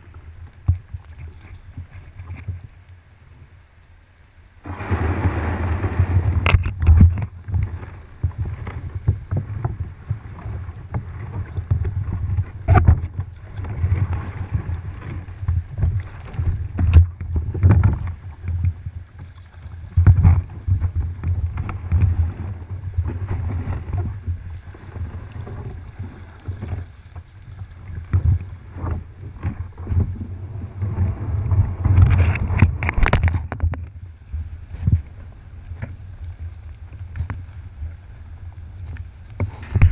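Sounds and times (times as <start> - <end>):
water splashing against kayak hull: 0.0 - 3.9, 4.5 - 39.9
kayak knocking: 4.6 - 33.9, 38.8 - 39.9
wind buffeting microphone: 4.6 - 39.9.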